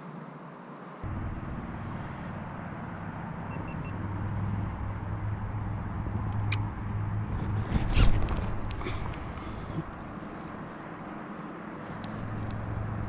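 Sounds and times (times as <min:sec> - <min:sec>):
low engine-like hum: 0:00.2 - 0:13.0
rumbling background: 0:04.0 - 0:10.8.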